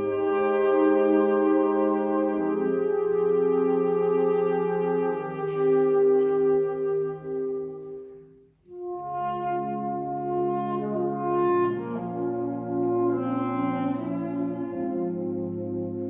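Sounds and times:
wind band playing sustained chords: 0:00.0 - 0:16.0.

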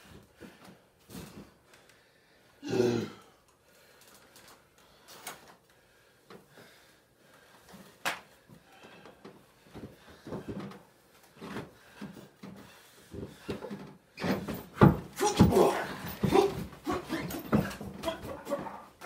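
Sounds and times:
faint footsteps and shuffling on mat: 0:00.0 - 0:02.5, 0:05.5 - 0:19.0.

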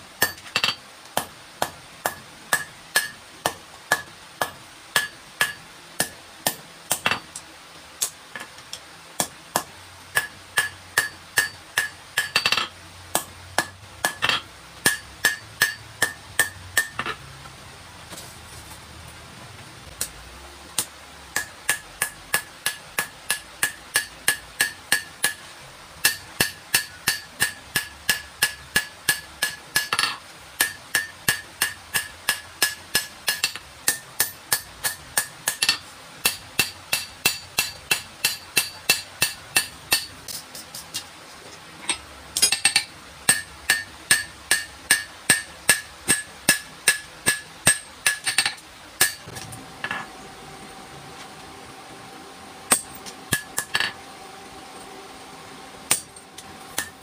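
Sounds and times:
hammer ringing on anvil: 0:14.9 - 0:17.1.

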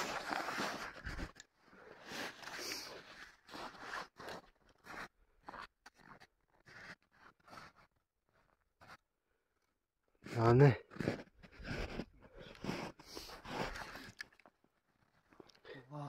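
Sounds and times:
footsteps crunching through snow: 0:00.0 - 0:07.9.

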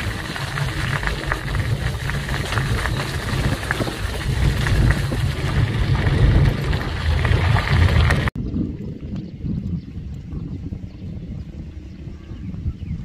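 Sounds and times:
vehicle rumbling: 0:00.0 - 0:08.4
wind buffeting microphone: 0:00.0 - 0:13.0.

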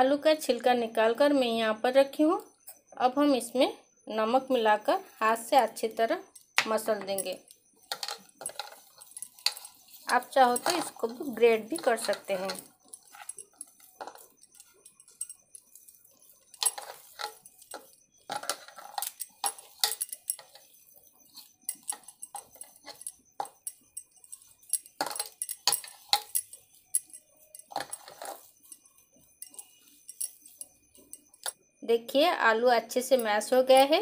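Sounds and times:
bangles clinking: 0:00.0 - 0:34.0
hand mashing potatoes: 0:08.0 - 0:26.4.

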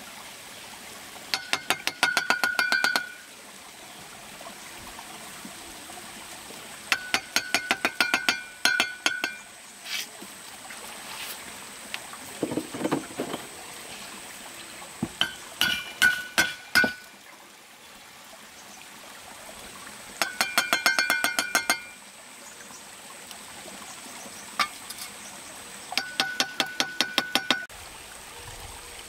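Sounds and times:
running water hiss: 0:00.0 - 0:29.0
trowel clinking on brick: 0:06.9 - 0:09.4, 0:15.2 - 0:17.0.

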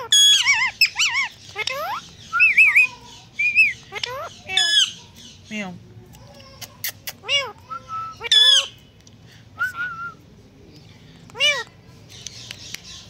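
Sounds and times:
parakeet chirping calls: 0:00.0 - 0:05.6, 0:07.2 - 0:08.8.

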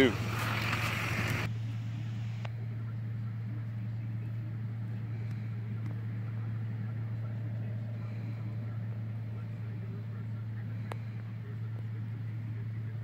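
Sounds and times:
combine harvester drone: 0:00.0 - 0:13.0.

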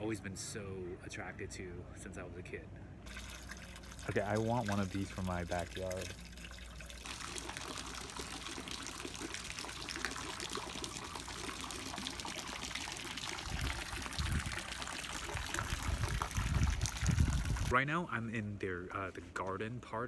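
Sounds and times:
fountain splashing into pond: 0:03.1 - 0:17.7.

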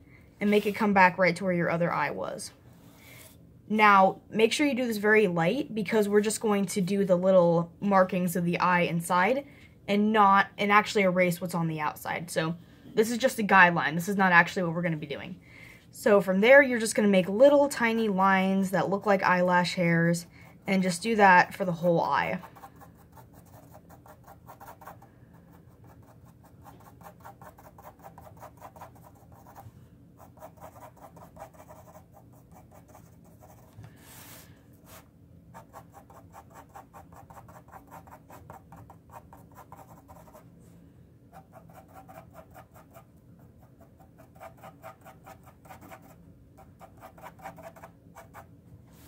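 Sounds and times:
pencil scratching on paper: 0:21.6 - 0:40.4, 0:41.3 - 0:48.5.

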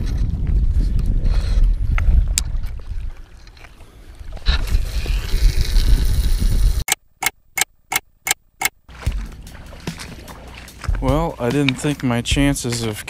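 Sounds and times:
wind rumble on microphone: 0:00.0 - 0:06.8.

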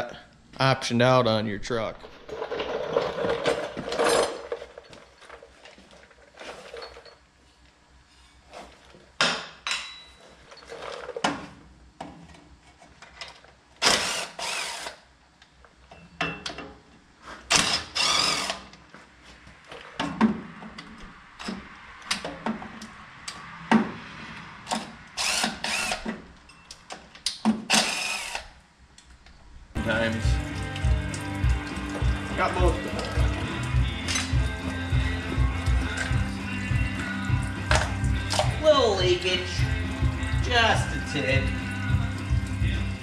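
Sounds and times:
cordless power tool bursts: 0:13.8 - 0:15.0, 0:17.5 - 0:18.7, 0:25.2 - 0:26.2, 0:27.7 - 0:28.6.

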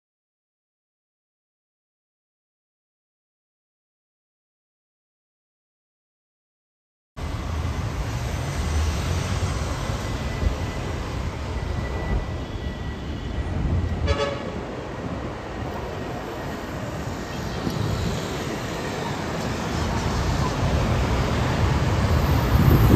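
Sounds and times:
jet airliner rumble: 0:07.2 - 0:22.9.

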